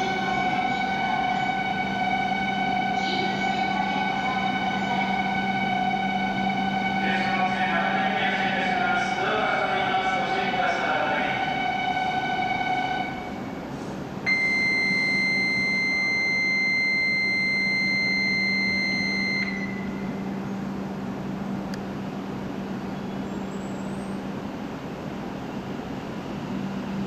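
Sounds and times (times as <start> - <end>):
train low hum: 0.0 - 27.0
departure buzzer tone: 14.3 - 20.4.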